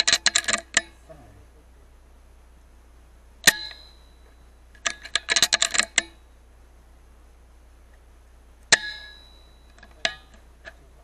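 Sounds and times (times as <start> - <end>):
sharp clicks: 0.0 - 1.0
metallic ring: 0.0 - 1.1, 3.4 - 6.4, 8.7 - 10.9.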